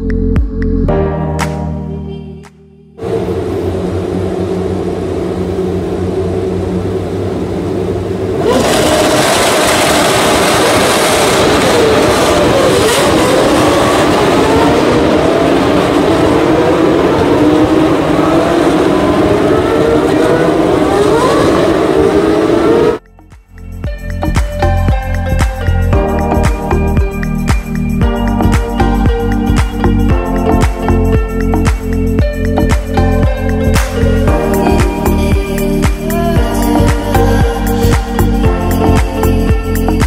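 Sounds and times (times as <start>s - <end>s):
race car engines revving: 3.0s - 23.0s.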